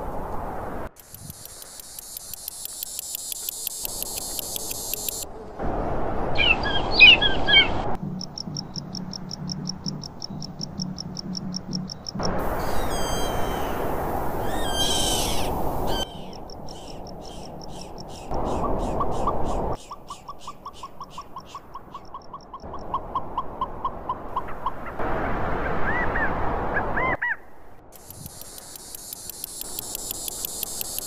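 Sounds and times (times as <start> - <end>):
high ticking insect trill: 1.0 - 5.3, 8.0 - 13.6, 28.0 - 31.0
short chirping calls: 1.0 - 5.3, 6.4 - 23.8
bird song with sliding whistles: 12.6 - 13.8, 14.4 - 18.3.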